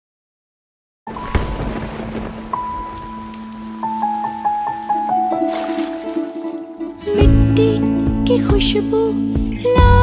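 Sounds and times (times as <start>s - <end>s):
thunder boom: 1.1s - 4.8s
heavy rain pouring: 1.1s - 7.3s.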